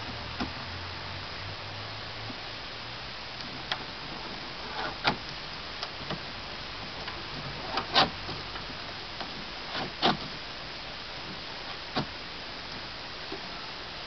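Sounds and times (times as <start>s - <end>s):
straps clicking and tapping: 3.4s - 10.4s, 11.2s - 13.5s.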